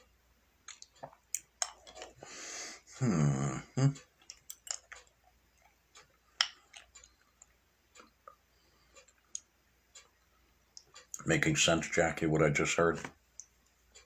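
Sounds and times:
low voice hum: 2.9 - 4.0
soft clicks and ticks: 3.9 - 14.0.

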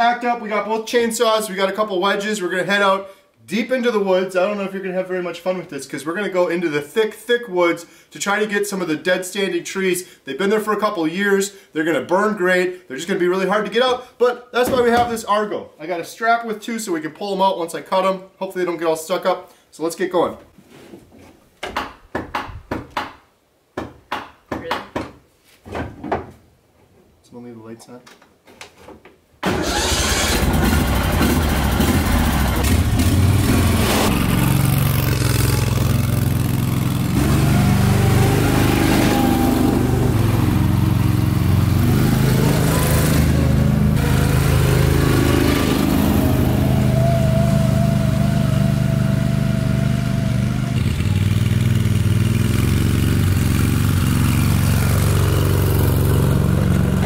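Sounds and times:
vehicle engine running: 30.5 - 57.0.

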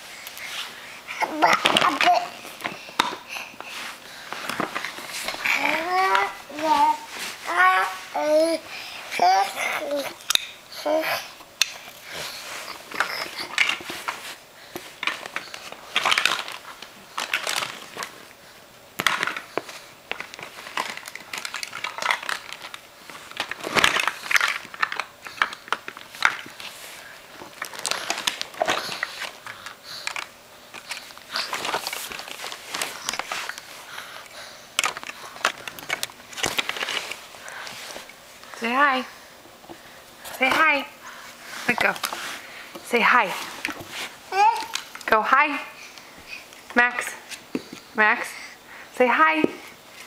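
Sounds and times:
plastic bag crinkling: 12.2 - 18.2, 19.0 - 38.1.

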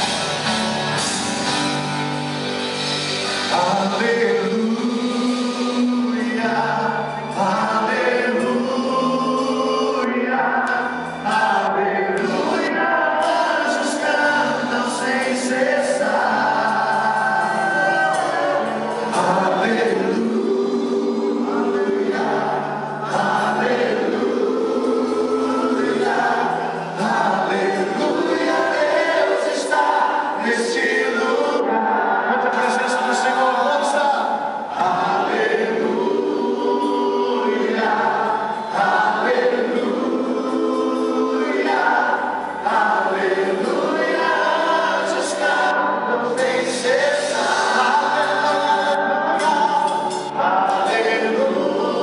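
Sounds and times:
choir singing worship song: 0.0 - 52.0
instrumental backing: 0.0 - 52.0.

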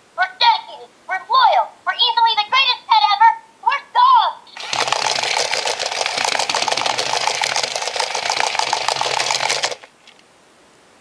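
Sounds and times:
toy motor whirring and clicking: 4.5 - 9.9.

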